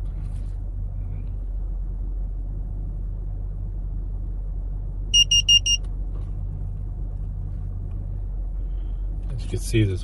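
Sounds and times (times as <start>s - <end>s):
low vehicle hum: 0.0s - 10.0s
high-pitched electronic beeps: 5.2s - 5.8s.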